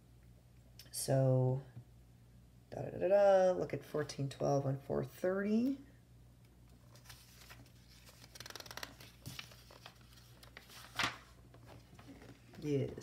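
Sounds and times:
paper page rustle: 6.7 - 13.0
page flipping swish: 6.9 - 12.6.

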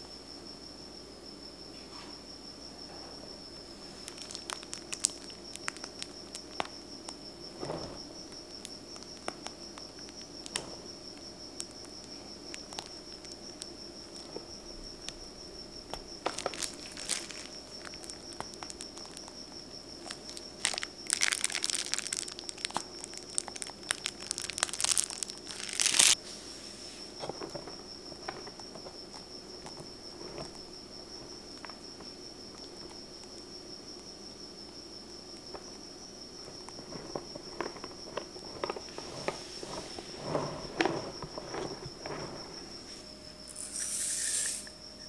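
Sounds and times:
piping bag crinkling: 3.7 - 26.2, 35.4 - 42.9.

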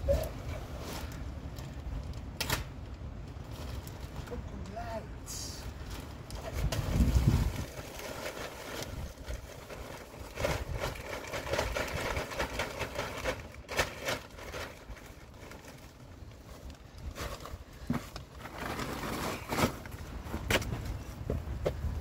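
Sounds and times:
plastic bag rustling: 0.0 - 4.6, 5.6 - 21.2
wind buffeting microphone: 6.2 - 8.0.

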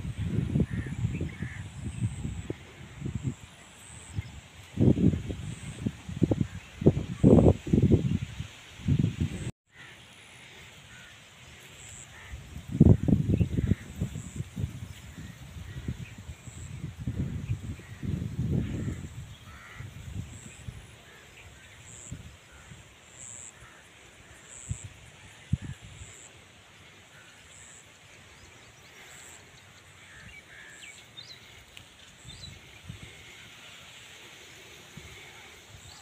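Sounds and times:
wind buffeting microphone: 0.0 - 3.4, 4.1 - 9.5, 12.4 - 20.9.

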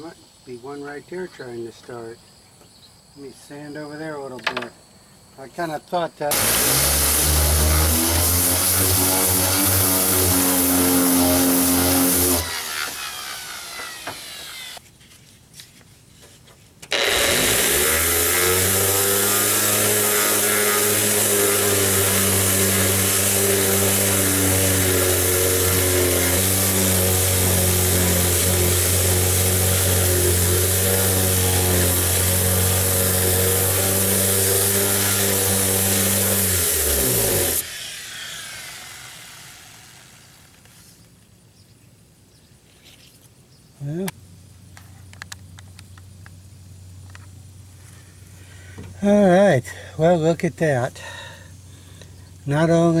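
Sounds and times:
orbital sander on metal: 6.3 - 14.8, 16.9 - 40.5.

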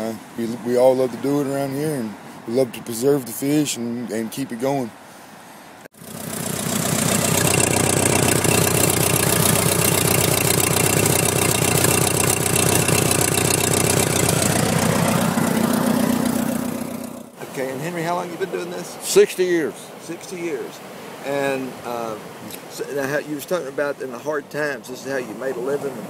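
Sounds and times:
tractor engine running: 6.0 - 17.4.

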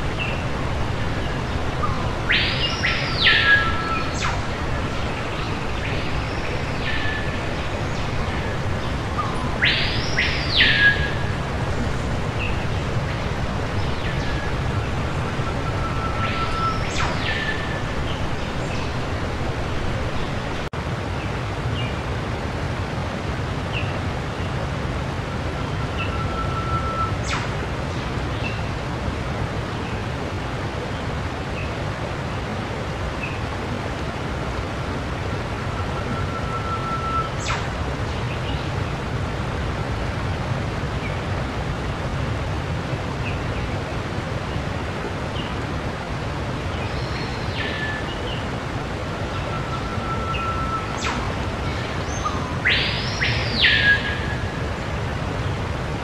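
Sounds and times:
steady low rushing noise: 0.0 - 25.6.

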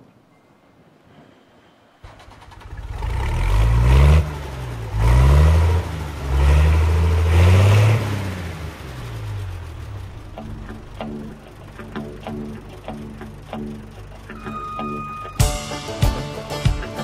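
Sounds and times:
diesel engine revving: 2.0 - 15.3.

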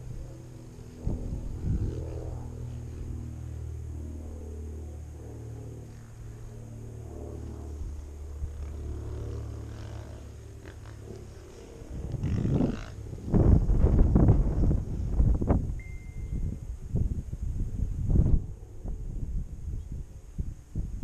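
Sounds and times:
dirt bike engine running: 0.0 - 3.8, 5.8 - 15.6.

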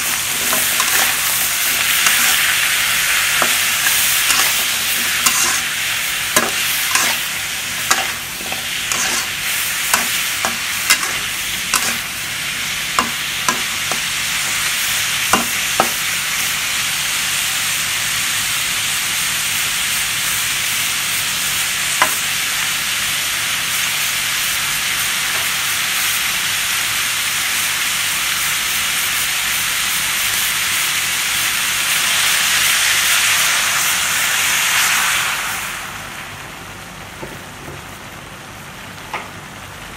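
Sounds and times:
spatula scraping a pan: 0.0 - 2.5, 3.4 - 12.1
food sizzling in a wok: 0.0 - 39.9.

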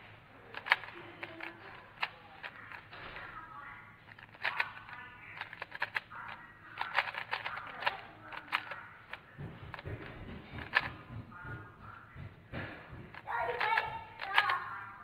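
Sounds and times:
plastic cube clicking: 0.5 - 3.3, 4.1 - 10.9, 13.1 - 14.7.

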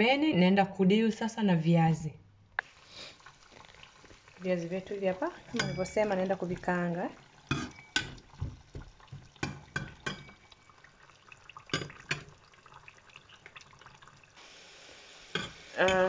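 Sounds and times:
steady hiss: 2.6 - 6.4, 14.3 - 16.0
food frying in bubbling oil: 2.6 - 16.0
metal spoon tapping pan: 5.5 - 6.7, 7.5 - 10.4, 11.7 - 12.4, 15.4 - 16.0.

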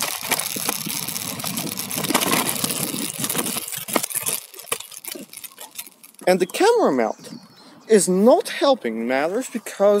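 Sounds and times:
scooter rolling over bumpy concrete: 0.0 - 7.1.

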